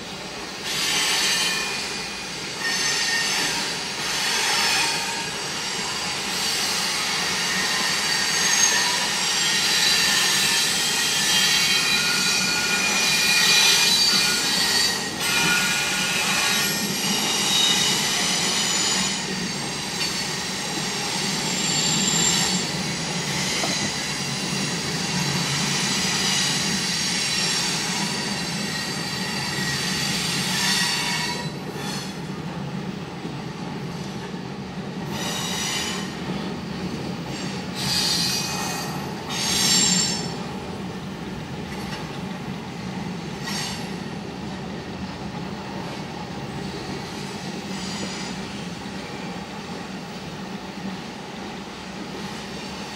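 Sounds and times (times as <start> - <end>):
freight train cars rumbling: 0.0 - 52.9
steel wheels squealing: 0.6 - 32.3, 35.1 - 36.4, 37.2 - 40.5, 43.4 - 44.0, 46.5 - 49.4.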